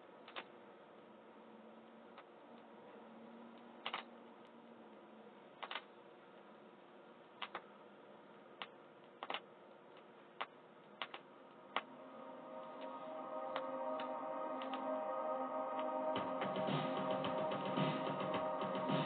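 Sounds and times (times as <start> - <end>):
vinyl surface noise: 0.0 - 19.0
record click: 8.6 - 9.5
stray vinyl ticks: 12.6 - 15.0, 15.7 - 19.0.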